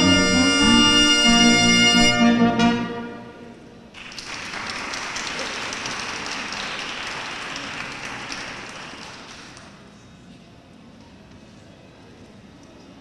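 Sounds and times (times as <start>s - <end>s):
brass ensemble chord: 0.0s - 3.9s
audience applause: 4.0s - 9.8s.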